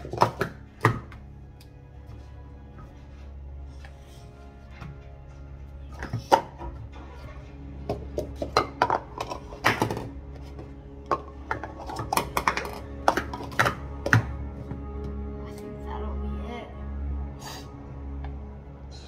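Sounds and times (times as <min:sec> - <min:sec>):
plastic cups clacking on mat: 0:00.0 - 0:01.2, 0:05.9 - 0:06.9, 0:07.8 - 0:14.8.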